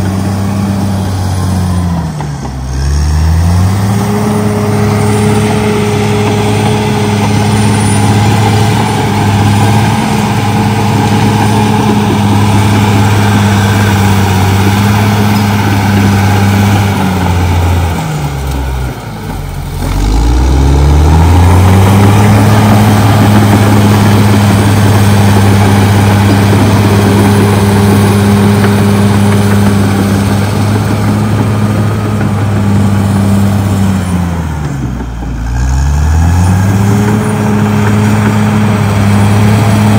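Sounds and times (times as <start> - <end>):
bulldozer diesel engine running: 0.0 - 39.9.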